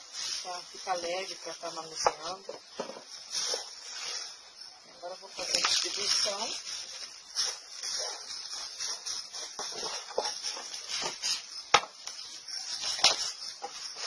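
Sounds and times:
potting soil sliding and rustling: 0.0s - 14.0s.

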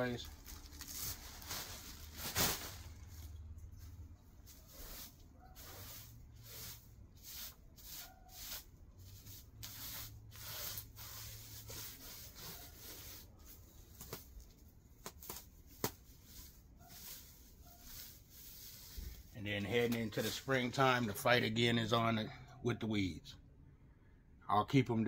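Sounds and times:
straw rustling and crackling: 0.0s - 6.0s.

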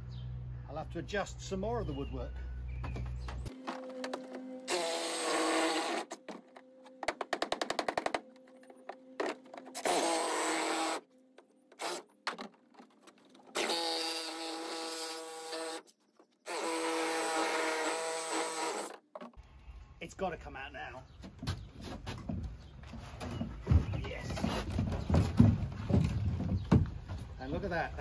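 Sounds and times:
cordless power saw cutting wood: 4.6s - 6.2s, 9.7s - 11.1s, 11.8s - 12.0s, 13.5s - 15.8s, 16.5s - 19.0s.

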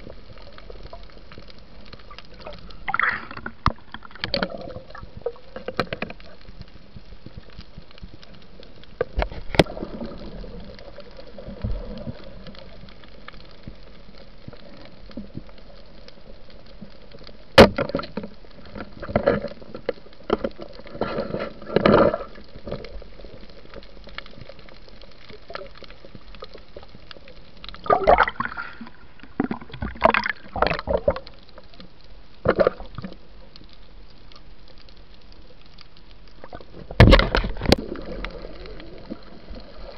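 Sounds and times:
bubbling and gurgling water: 0.0s - 39.9s
underwater hiss: 27.9s - 29.7s.

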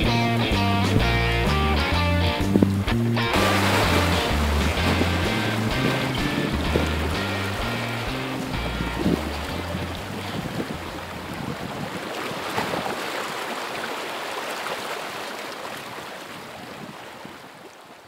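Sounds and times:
breaking waves and rushing water: 0.9s - 18.0s
wind on microphone: 2.2s - 2.9s, 3.5s - 13.0s, 15.8s - 17.6s.

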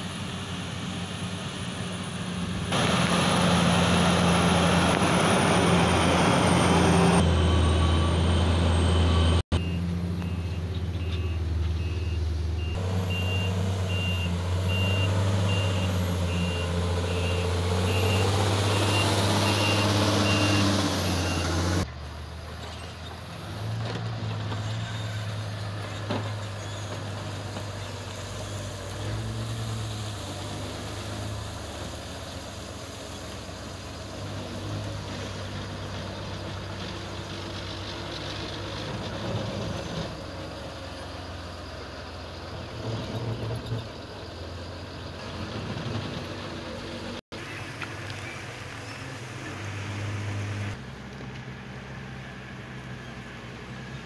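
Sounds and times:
heavy diesel engines droning: 0.0s - 54.0s
reversing alarm beeping: 7.1s - 21.8s.

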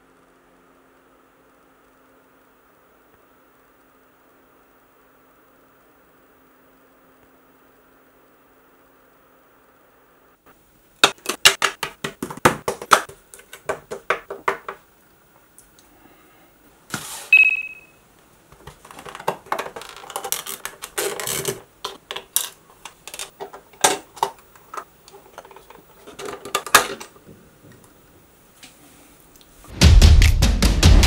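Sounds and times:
plastic parts clicking: 18.6s - 27.2s.

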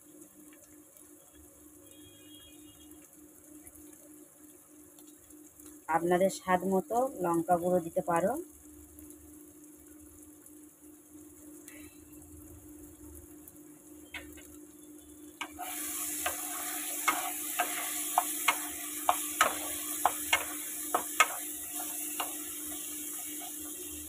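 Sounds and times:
food sizzling in oil: 0.0s - 24.0s
spatula stirring and knocking pan: 15.4s - 24.0s.

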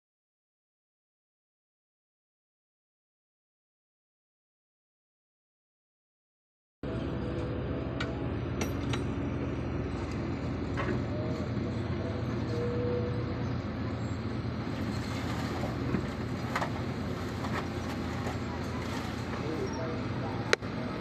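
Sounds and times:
diesel truck engines running: 6.8s - 21.0s
machinery knocks and clanks: 7.2s - 9.3s, 14.0s - 20.7s.

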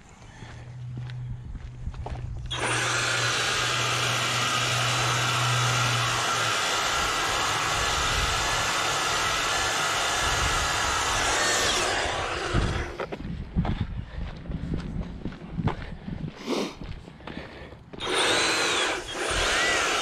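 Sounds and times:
power brush whirring: 2.4s - 13.1s, 18.0s - 20.0s.

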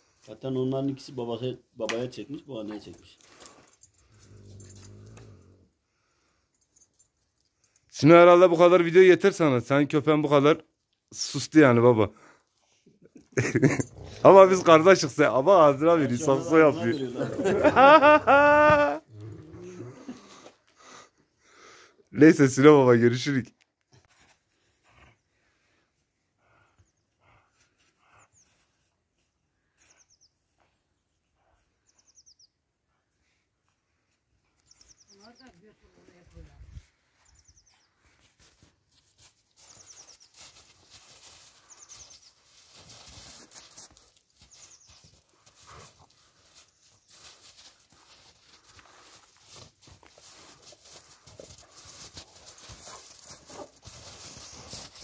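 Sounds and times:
small bird chirping: 31.8s - 32.6s, 34.6s - 35.6s, 37.2s - 38.1s, 39.6s - 40.7s, 41.3s - 42.5s, 44.4s - 45.3s
dogs scuffling on snow: 38.1s - 55.0s.

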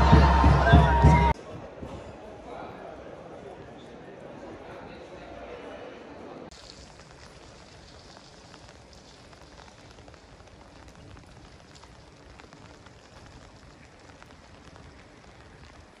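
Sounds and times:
steady rain: 6.5s - 16.0s.

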